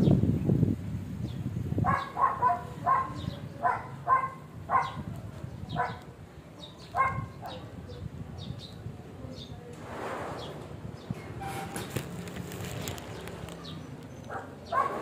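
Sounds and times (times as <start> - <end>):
dog barking: 1.8 - 5.1, 5.7 - 6.1, 6.9 - 7.7, 14.3 - 15.0.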